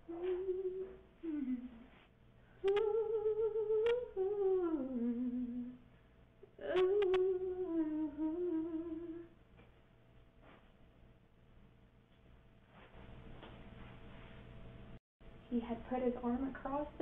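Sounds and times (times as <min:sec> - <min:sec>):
woman softly singing wordless tune: 0:00.0 - 0:01.9, 0:02.6 - 0:05.8, 0:06.5 - 0:09.3.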